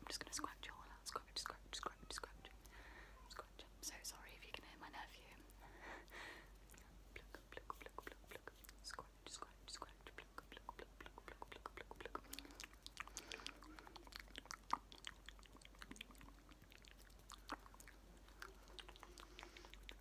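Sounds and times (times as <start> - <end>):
wet lip and tongue clicks: 6.1 - 20.0.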